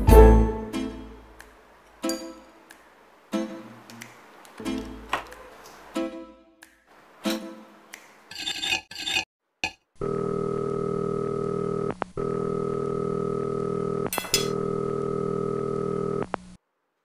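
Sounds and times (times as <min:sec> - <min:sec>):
cutlery clinking on a plate: 0:14.1 - 0:14.6.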